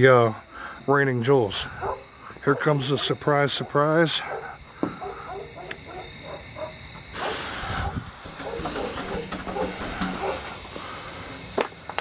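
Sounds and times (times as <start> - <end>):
firework fuse hissing: 4.7 - 6.2, 6.8 - 12.0
sharp pops: 11.5 - 12.0.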